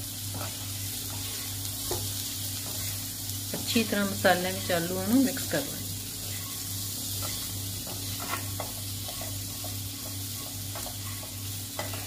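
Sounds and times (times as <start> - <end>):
potatoes sizzling in hot oil: 0.0 - 12.0
spatula scraping a pan: 0.2 - 2.0, 6.2 - 12.0.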